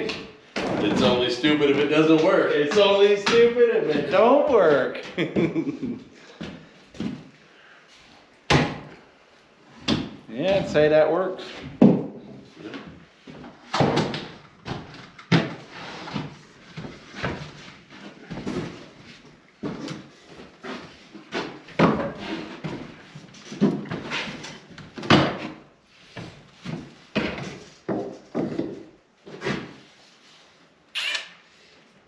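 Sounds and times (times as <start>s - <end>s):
wooden knocks and clunks: 27.1s - 29.7s.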